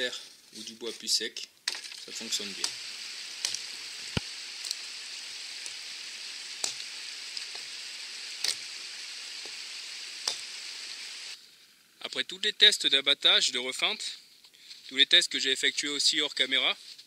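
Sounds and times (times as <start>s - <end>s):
axe striking branches: 3.4s - 4.9s, 6.5s - 7.8s, 8.4s - 8.8s, 10.2s - 10.6s.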